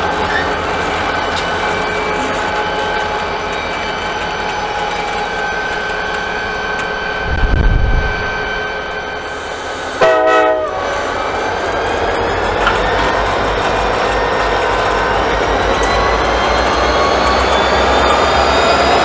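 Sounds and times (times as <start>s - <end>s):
diesel engines rumbling: 0.0s - 19.0s
turbocharger whine: 0.0s - 19.0s
locomotive horn blast: 9.9s - 11.1s.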